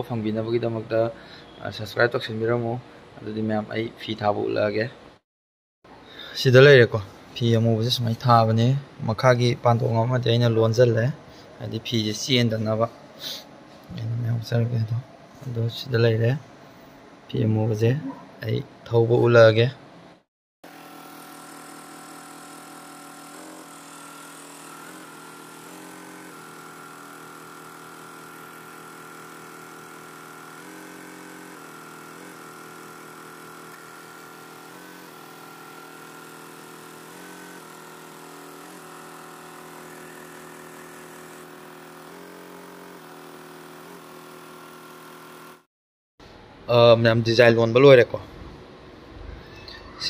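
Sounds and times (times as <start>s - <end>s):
embroidery machine hum: 20.8s - 45.3s.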